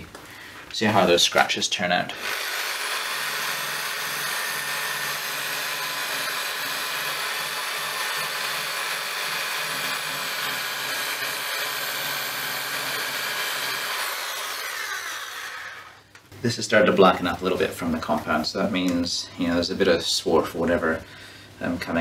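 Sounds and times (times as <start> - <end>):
electric drill motor whining: 2.1 - 16.0.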